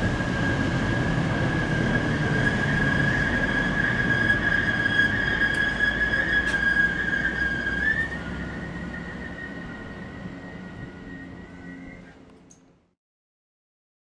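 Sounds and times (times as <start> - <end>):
train high-pitched whine: 0.0 - 13.0
train low rumble: 0.0 - 13.0.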